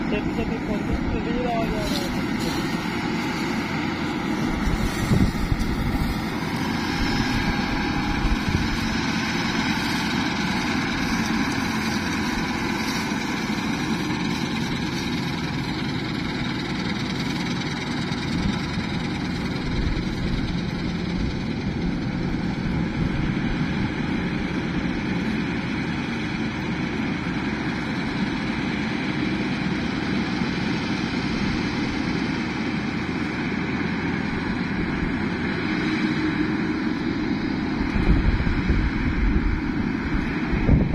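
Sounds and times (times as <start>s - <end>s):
combine harvester running: 0.0s - 40.9s.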